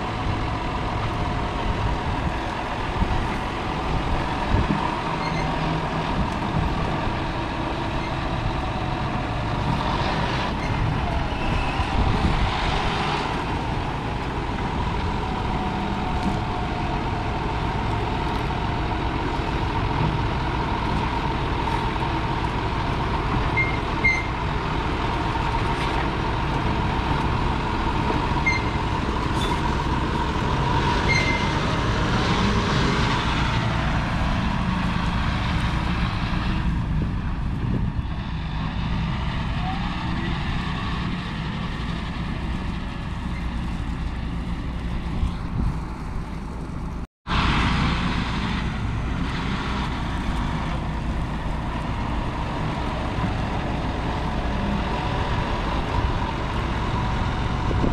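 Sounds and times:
tractor diesel engine running: 0:00.0 - 0:57.9.

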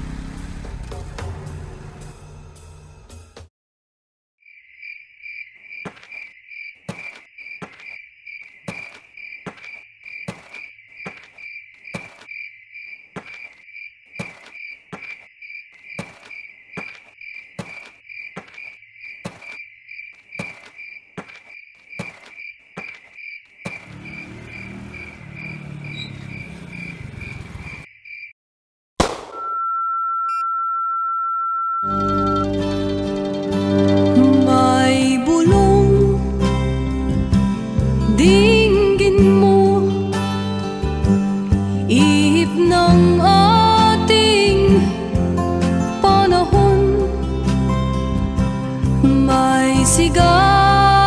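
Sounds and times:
crickets chirping: 0:04.4 - 0:28.3
footsteps on pavement: 0:05.8 - 0:12.3, 0:13.0 - 0:23.9
steady high beep tone: 0:29.4 - 0:32.5.

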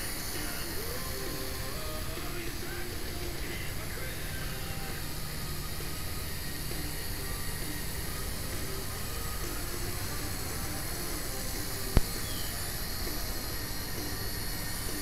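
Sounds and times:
hiss and low rumble: 0:00.0 - 0:15.0
quadcopter propellers whirring: 0:00.0 - 0:15.0.

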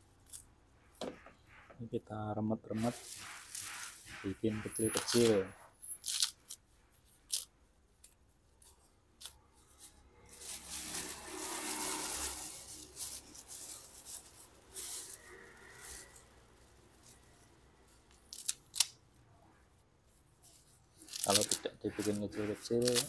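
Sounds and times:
plastic bag rustling: 0:02.6 - 0:06.6, 0:08.6 - 0:19.2, 0:20.0 - 0:23.0
leaves torn and crushed by hand: 0:09.2 - 0:19.2, 0:20.9 - 0:22.1, 0:22.7 - 0:23.0.

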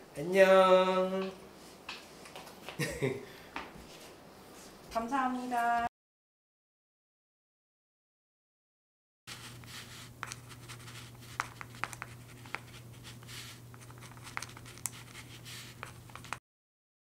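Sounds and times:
pen scratching on paper: 0:09.3 - 0:16.4.

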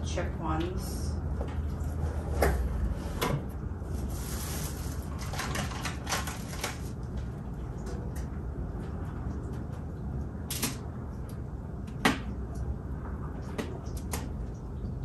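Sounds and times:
packaging rustling: 0:03.8 - 0:07.1.

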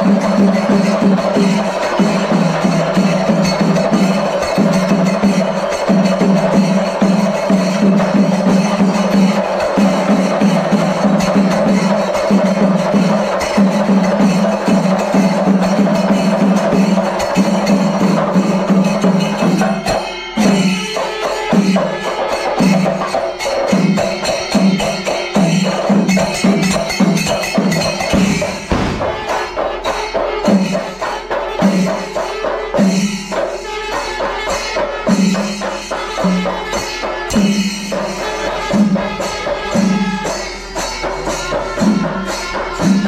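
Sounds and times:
cymbals clashing: 0:00.0 - 0:43.0
drums beaten with sticks: 0:00.0 - 0:43.0
deep drum pulse: 0:28.1 - 0:29.6.

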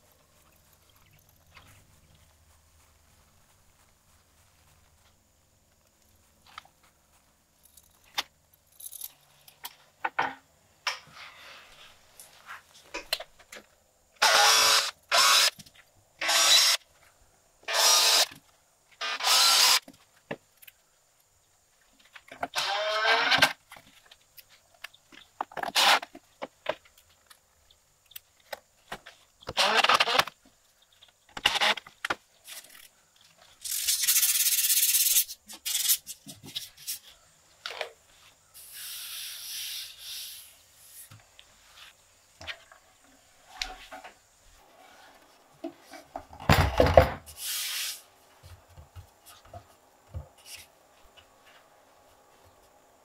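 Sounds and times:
power drill driving screws: 0:14.2 - 0:15.6, 0:16.2 - 0:16.8, 0:17.7 - 0:18.3, 0:19.0 - 0:19.8, 0:22.5 - 0:23.5, 0:25.7 - 0:26.0, 0:29.5 - 0:30.3, 0:31.4 - 0:31.8.

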